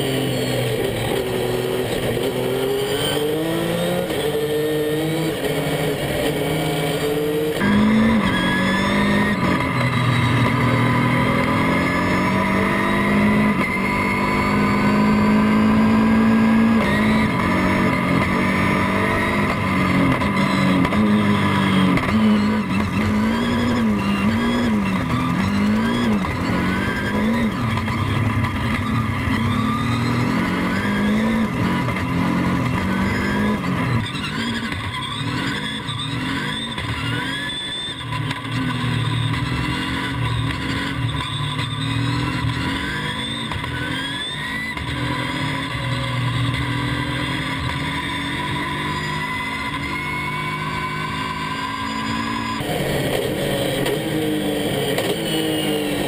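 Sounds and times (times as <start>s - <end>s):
race car engine at full throttle: 0.0s - 56.0s.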